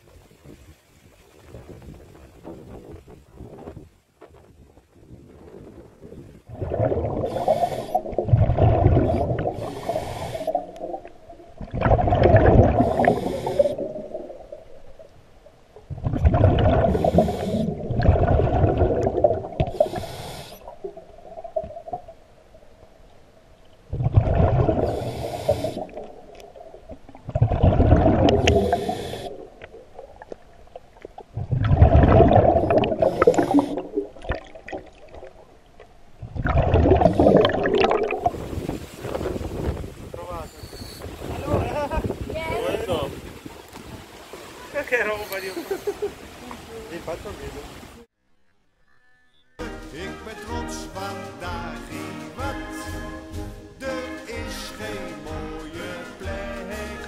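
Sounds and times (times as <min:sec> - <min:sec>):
diver's breath bubbling underwater: 0:06.4 - 0:14.9, 0:15.8 - 0:22.1, 0:23.9 - 0:30.3, 0:31.3 - 0:35.4, 0:36.2 - 0:39.8.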